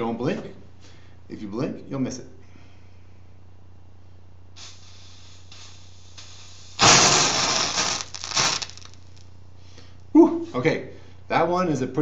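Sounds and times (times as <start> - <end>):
chemical flare hissing and crackling: 4.6 - 9.3.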